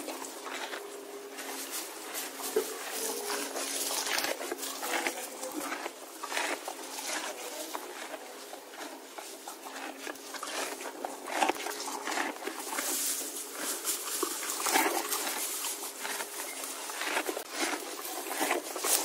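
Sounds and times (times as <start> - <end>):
horse crunching feed: 0.0 - 19.0.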